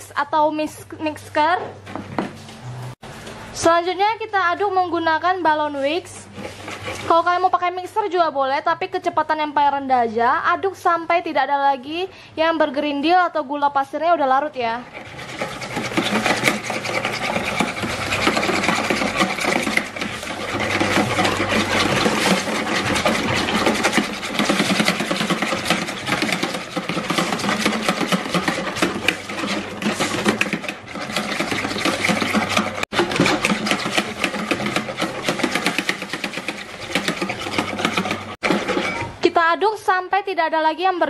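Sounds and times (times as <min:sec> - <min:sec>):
whisk clicking against bowl: 0:14.9 - 0:39.0.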